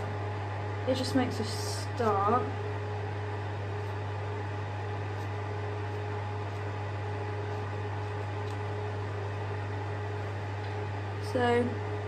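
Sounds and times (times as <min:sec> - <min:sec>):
extractor fan running: 0:00.0 - 0:12.0.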